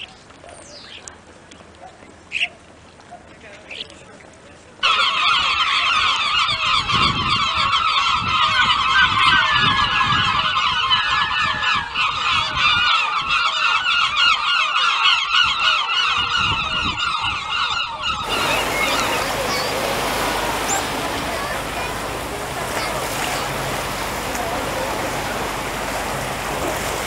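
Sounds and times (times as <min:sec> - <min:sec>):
gulls calling: 0:18.2 - 0:27.0.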